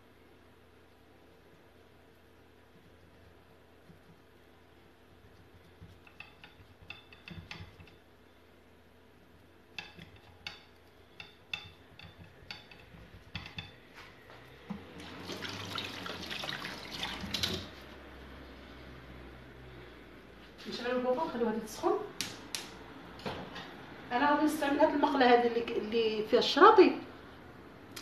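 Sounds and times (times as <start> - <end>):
light clicks and taps on plate: 5.8 - 8.0, 9.7 - 13.8.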